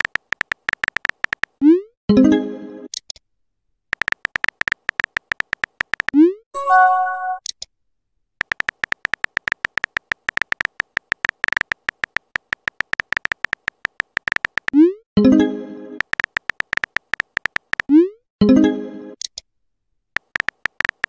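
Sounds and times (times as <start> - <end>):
key-tap clicks: 0.0 - 1.5, 3.9 - 6.2, 8.4 - 14.8, 16.0 - 17.9, 20.2 - 21.0
synthesized chime: 6.6 - 7.4.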